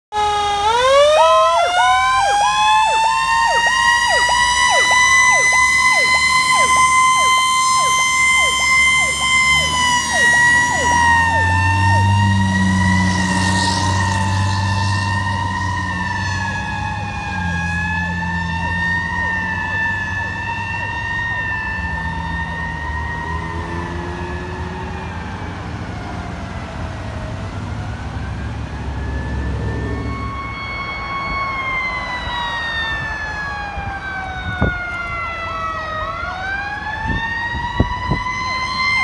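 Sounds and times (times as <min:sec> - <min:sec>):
electronic siren yelping: 0:00.1 - 0:25.2, 0:28.1 - 0:39.0
mechanical siren wailing: 0:00.1 - 0:39.0.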